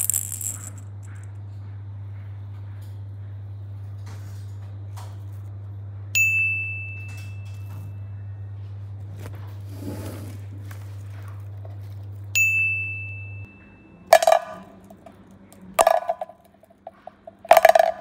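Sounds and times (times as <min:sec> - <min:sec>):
plastic capsules clacking on mat: 0:00.0 - 0:01.3, 0:14.1 - 0:18.0
bright ding: 0:12.4 - 0:14.7.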